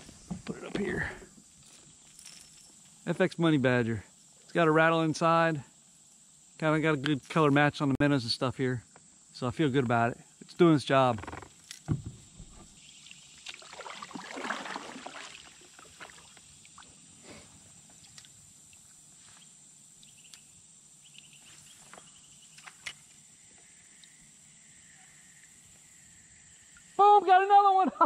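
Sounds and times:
faint insect drone: 0.0 - 28.0.

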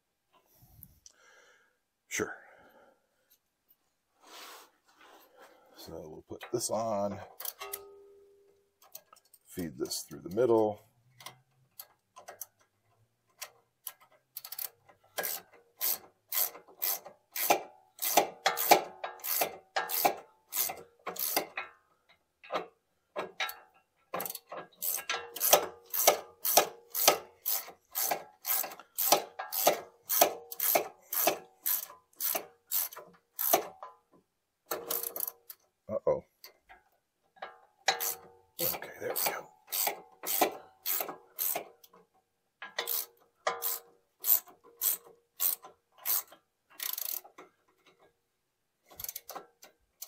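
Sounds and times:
ratchet wrench clicking: 7.4 - 7.8, 13.4 - 21.7, 23.3 - 33.8, 34.7 - 35.6, 37.4 - 41.9, 42.6 - 47.4, 48.9 - 49.7.

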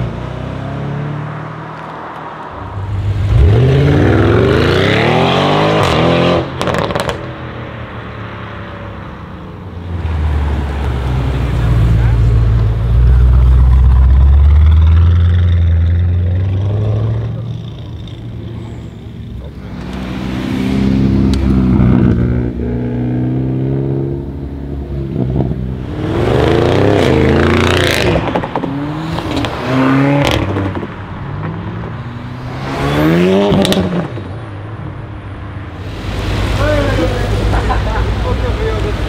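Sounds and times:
another car accelerating: 0.0 - 39.0
car engine accelerating hard: 10.2 - 31.0.

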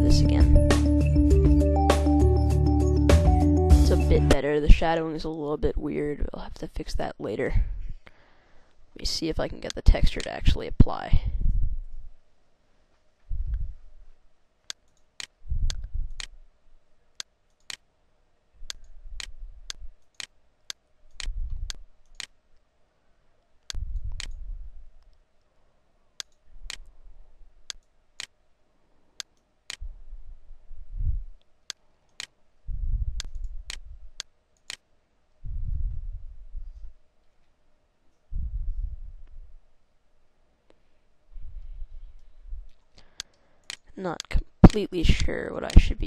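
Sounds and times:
short low rumbles: 11.2 - 12.1, 13.3 - 13.9, 29.8 - 31.4, 32.7 - 34.1, 35.5 - 36.9, 38.3 - 39.5
computer mouse clicking: 17.2 - 17.8, 18.6 - 22.4, 23.6 - 24.5, 26.2 - 26.9, 33.2 - 34.8.

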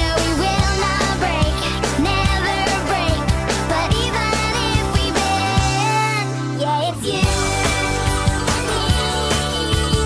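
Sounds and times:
pop-rock band playing: 0.0 - 10.0
woman singing: 0.0 - 10.0.

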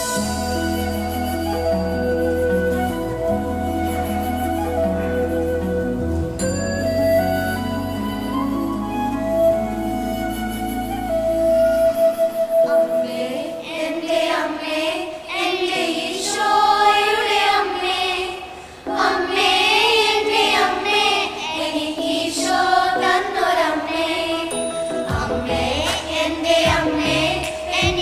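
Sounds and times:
children's choir singing: 12.6 - 28.0.

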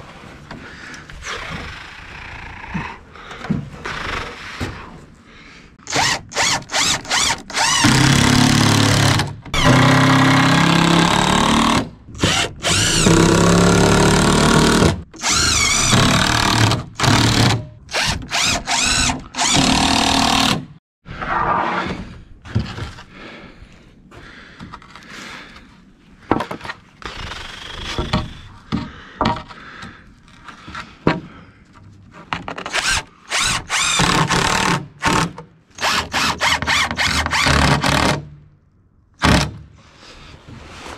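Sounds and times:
impact driver driving screws: 5.8 - 20.6, 32.5 - 38.2.

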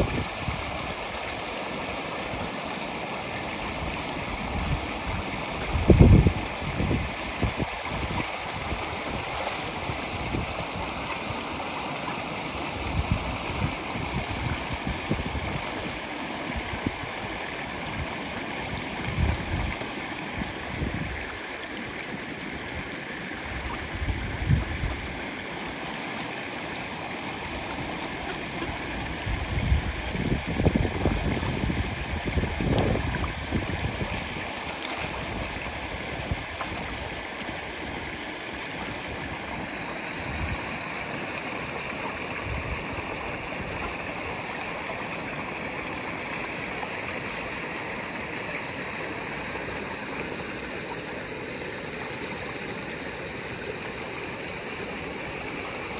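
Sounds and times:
stream rushing over rapids: 0.0 - 55.9.

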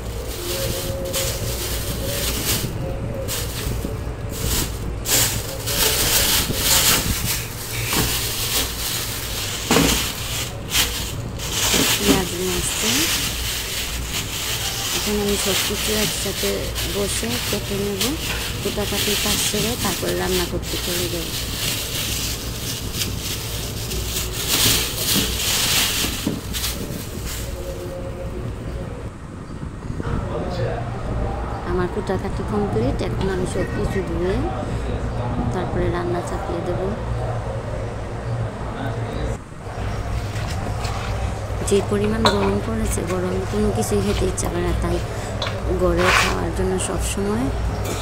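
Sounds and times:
plastic bag crinkling: 0.0 - 27.9, 39.9 - 46.5
things rustling on a plastic tray: 0.0 - 27.9, 39.8 - 46.5
steady low hum: 0.0 - 48.0.

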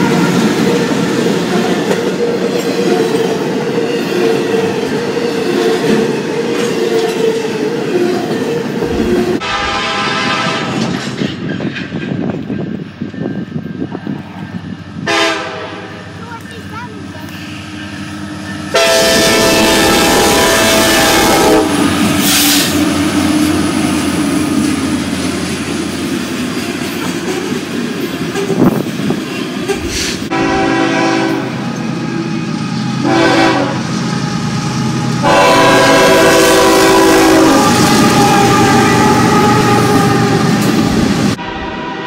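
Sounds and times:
freight cars rumbling and clattering: 0.0 - 15.0, 16.1 - 18.7
locomotive air horn blasts: 9.0 - 10.9, 15.0 - 16.0, 18.7 - 22.7, 30.3 - 31.6, 33.0 - 33.8, 35.2 - 40.5, 41.4 - 42.0.

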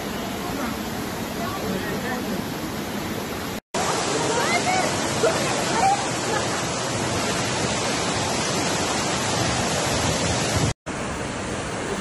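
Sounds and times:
water rushing down stairs: 3.8 - 10.8.

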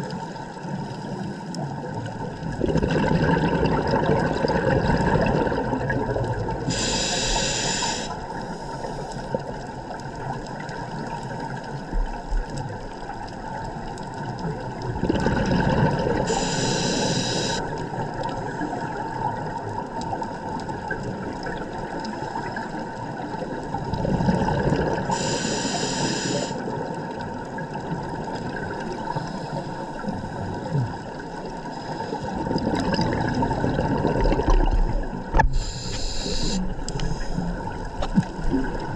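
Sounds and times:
bubbling exhaled air underwater: 1.6 - 38.9
regulator hiss: 6.7 - 9.1, 16.3 - 17.7, 25.1 - 26.6, 35.4 - 37.5.

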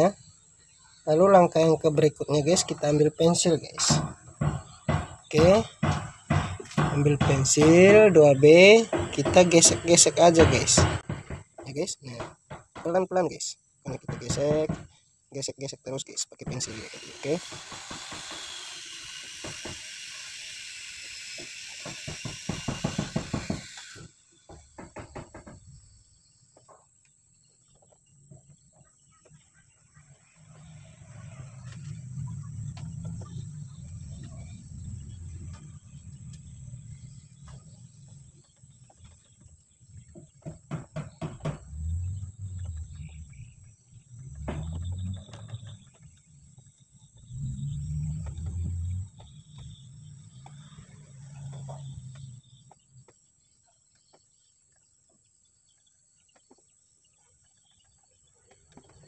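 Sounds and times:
low rumble: 30.6 - 38.3, 41.6 - 46.2.

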